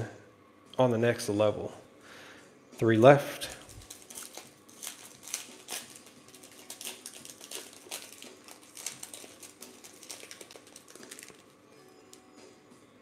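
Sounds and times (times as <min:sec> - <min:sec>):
foil wrapper crinkling and tearing: 0:03.4 - 0:12.2
cards sliding out of wrapper: 0:03.5 - 0:12.2.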